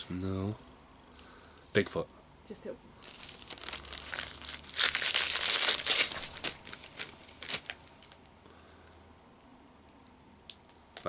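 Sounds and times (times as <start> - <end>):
wrapping paper crinkling and tearing: 3.0 - 8.2.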